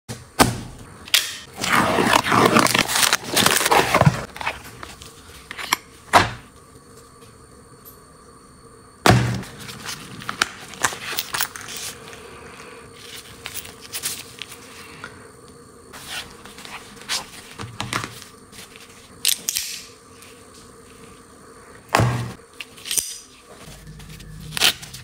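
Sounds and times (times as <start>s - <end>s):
cardboard rustling and scraping: 1.5s - 5.8s, 9.4s - 12.1s, 16.0s - 19.1s.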